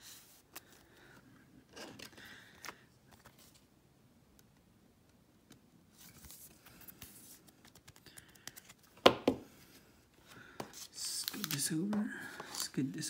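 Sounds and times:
plastic sleeve rustling: 10.7s - 13.0s.

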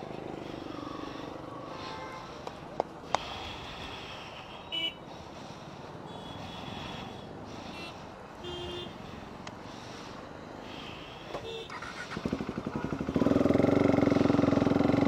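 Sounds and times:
road traffic: 0.0s - 15.0s
vehicle horns tooting: 1.8s - 2.3s, 4.6s - 5.0s, 6.1s - 9.0s, 11.4s - 11.9s.

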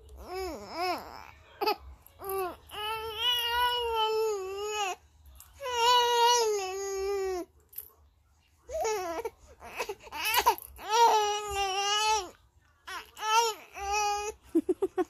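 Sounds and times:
baby crying: 8.7s - 12.3s.

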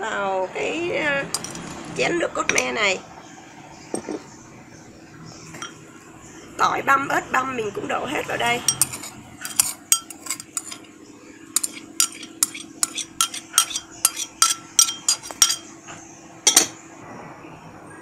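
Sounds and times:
metal spoon clinking ceramic bowls: 1.3s - 1.8s, 8.6s - 10.9s, 11.6s - 15.8s, 16.4s - 16.8s.

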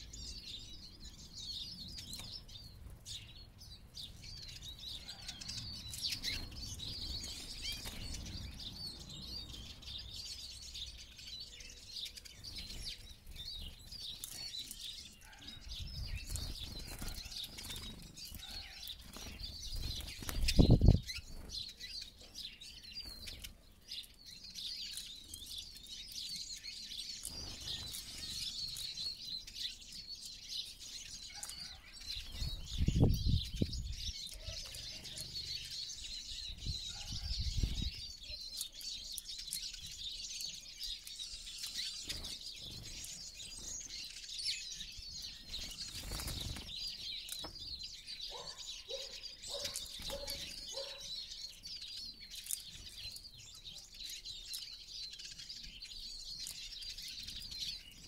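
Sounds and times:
small birds twittering: 0.0s - 58.0s.

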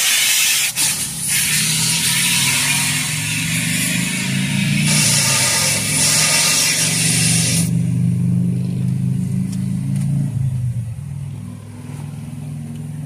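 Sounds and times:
car wash equipment hissing: 0.0s - 8.0s
car engine running: 0.9s - 13.0s.

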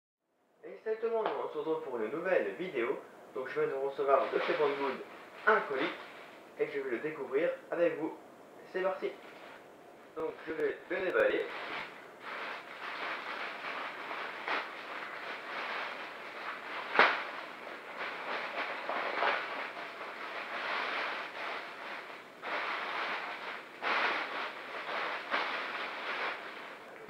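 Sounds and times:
plastic packaging crinkling: 10.2s - 27.0s
loud sharp crack: 16.8s - 17.4s.

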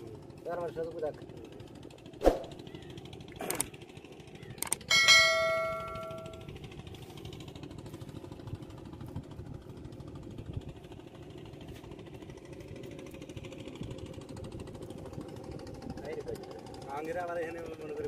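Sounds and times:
small engine knocking: 0.0s - 18.0s.

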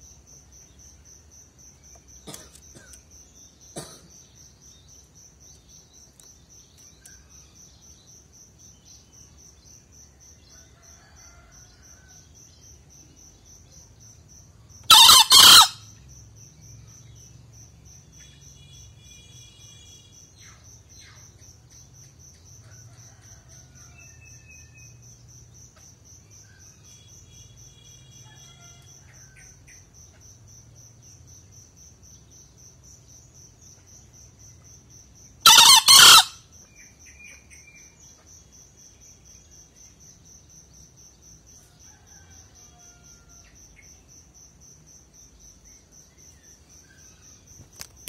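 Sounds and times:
crickets chirping: 0.0s - 48.0s
junglefowl crowing: 14.9s - 15.8s, 35.4s - 36.4s.

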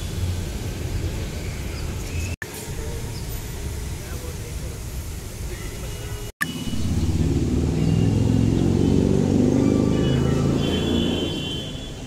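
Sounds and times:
vehicle engine passing: 6.7s - 11.5s.

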